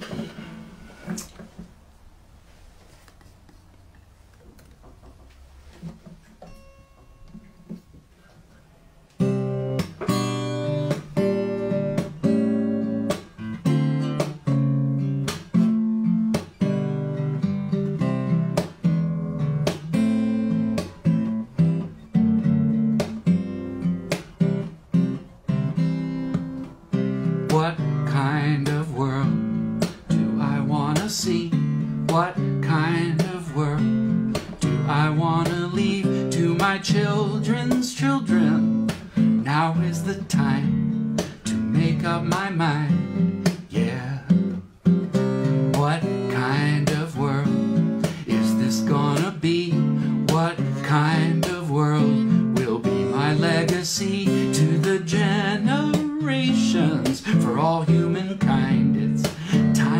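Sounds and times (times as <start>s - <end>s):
acoustic guitar strumming: 0.0s - 1.5s, 5.6s - 59.9s
man singing: 27.4s - 44.4s, 45.6s - 59.9s.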